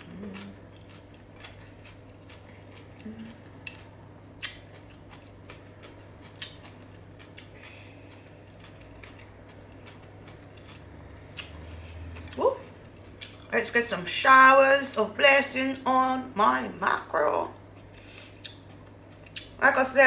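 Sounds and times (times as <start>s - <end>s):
soft chewing: 0.0s - 13.6s, 17.6s - 19.6s.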